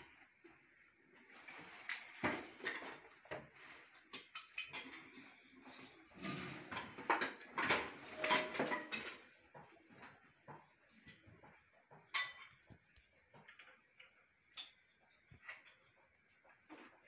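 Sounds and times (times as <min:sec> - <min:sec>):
knocks and metallic clinks: 0:08.2 - 0:09.2.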